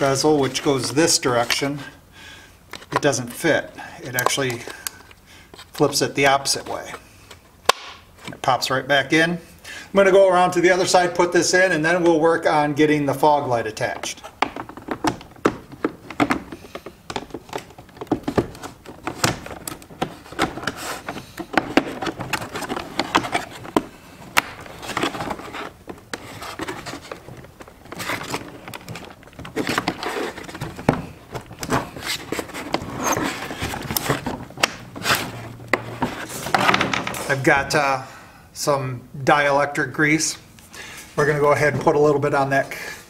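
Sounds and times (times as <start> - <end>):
wires rustling: 12.3 - 37.8
plastic clicks and scrapes: 14.0 - 36.8.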